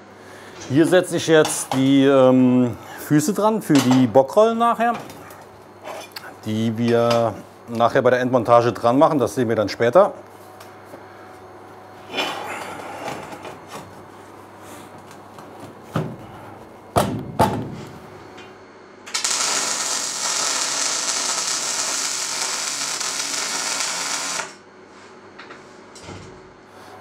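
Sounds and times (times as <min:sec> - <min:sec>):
welding arc crackling and hissing: 0:19.1 - 0:24.6.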